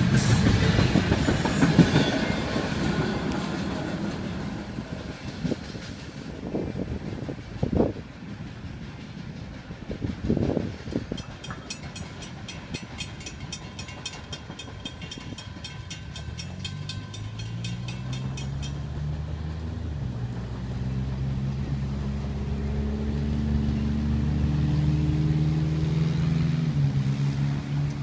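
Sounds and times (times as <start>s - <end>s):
road traffic engine hum: 10.4s - 28.0s
railroad crossing bell ringing: 11.0s - 19.6s.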